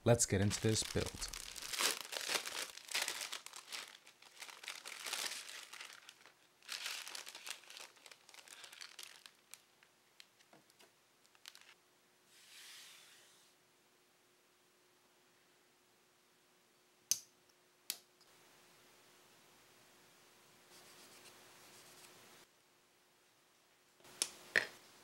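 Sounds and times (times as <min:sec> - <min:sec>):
plastic bags crinkling and tearing: 0:00.4 - 0:11.8.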